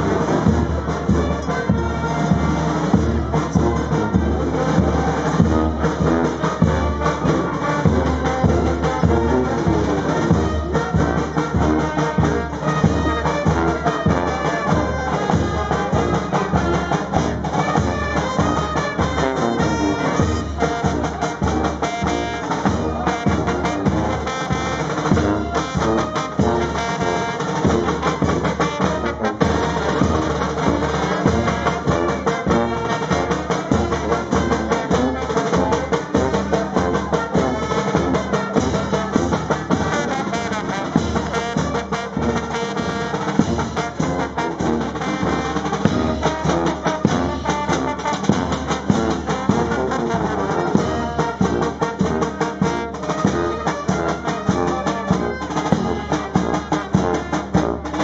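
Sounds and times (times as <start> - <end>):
cymbals: 0.0 - 58.0
trombones: 0.0 - 58.0
trumpets: 0.0 - 58.0.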